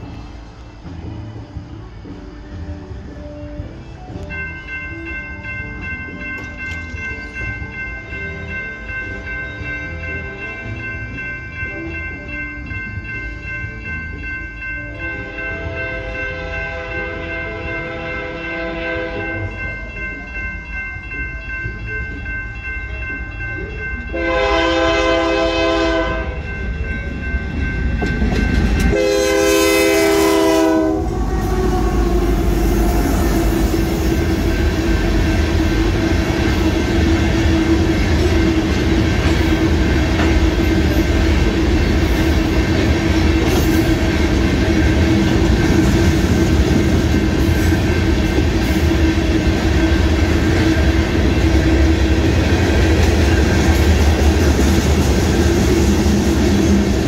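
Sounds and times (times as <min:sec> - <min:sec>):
crossing warning bells ringing: 0:00.0 - 0:57.0
train cars rumbling: 0:00.0 - 0:57.0
locomotive horn blasts: 0:24.1 - 0:26.4, 0:28.9 - 0:33.2.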